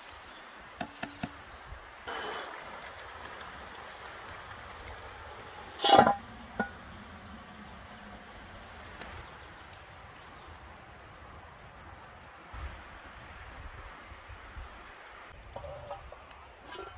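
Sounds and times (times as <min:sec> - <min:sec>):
campfire popping: 0:05.7 - 0:13.3
iron lid clanking on pot: 0:05.8 - 0:06.8, 0:15.6 - 0:16.9.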